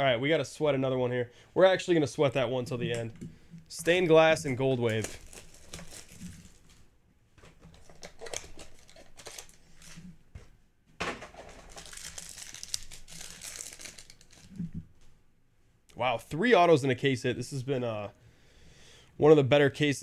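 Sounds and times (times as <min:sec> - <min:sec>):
wrapper crumpling: 0:04.7 - 0:06.9, 0:07.6 - 0:10.1, 0:11.4 - 0:14.8
foil pack tearing: 0:04.9 - 0:06.8, 0:07.8 - 0:10.0, 0:11.6 - 0:14.6.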